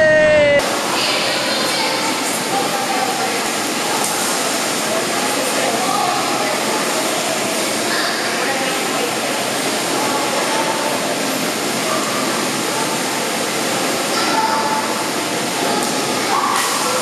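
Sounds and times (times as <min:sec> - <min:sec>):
din of children's voices: 0:00.0 - 0:03.4, 0:05.2 - 0:09.0, 0:14.0 - 0:17.0.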